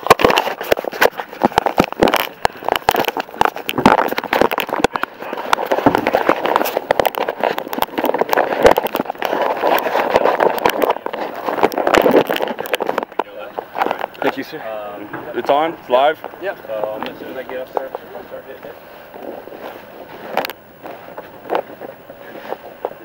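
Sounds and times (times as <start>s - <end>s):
clothing rubbing on microphone: 0.0s - 14.5s, 16.8s - 23.0s.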